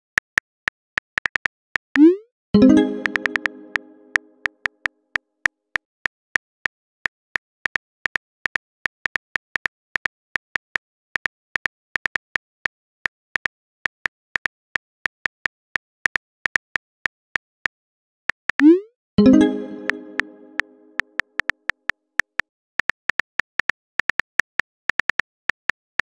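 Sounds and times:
phone keyboard typing clicks: 2.6s - 4.5s.

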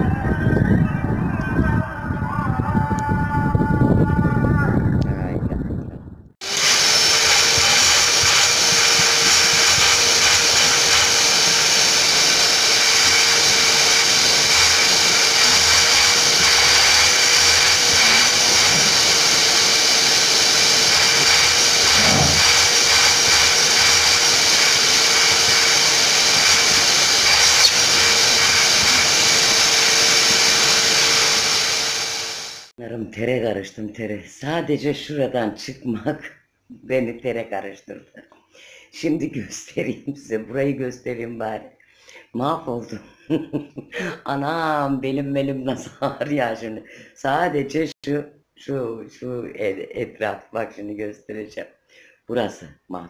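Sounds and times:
vacuum cleaner whine: 6.4s - 32.7s.

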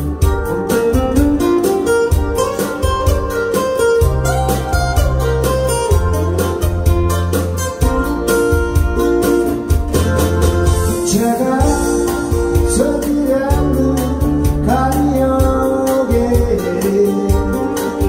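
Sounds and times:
acoustic guitar: 0.0s - 18.0s
backing track drum beat and bass: 0.0s - 18.0s
man singing pop song: 10.9s - 18.0s.

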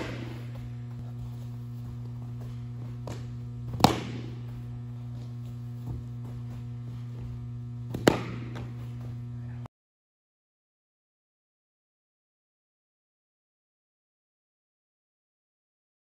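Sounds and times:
baseball smacks: 0.0s - 0.7s, 2.4s - 6.4s, 7.8s - 9.2s
faint footfalls on turf: 0.0s - 9.5s
steady low hum: 0.0s - 9.7s.

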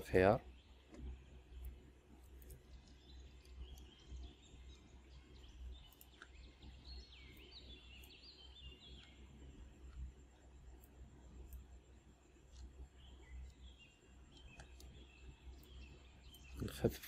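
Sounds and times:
faint bird-like chirps: 0.0s - 17.0s
faint low hum: 0.0s - 17.0s
soft clicks: 0.8s - 4.3s, 5.7s - 9.2s, 12.5s - 13.7s, 14.3s - 16.9s.

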